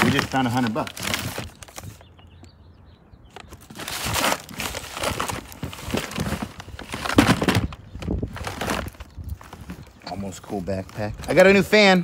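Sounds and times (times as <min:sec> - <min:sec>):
plastic bags crinkling: 0:03.4 - 0:09.9.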